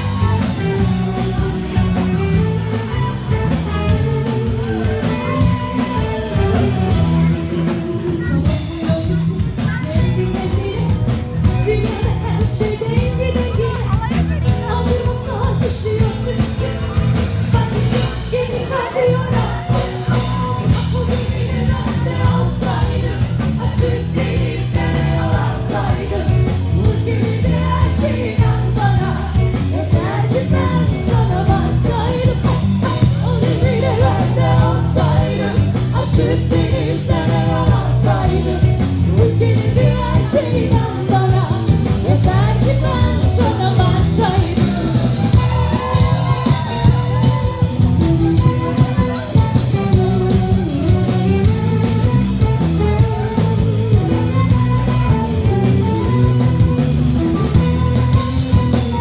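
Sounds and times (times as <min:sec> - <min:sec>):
live band playing: 0:00.0 - 0:59.0
woman singing: 0:05.1 - 0:47.6.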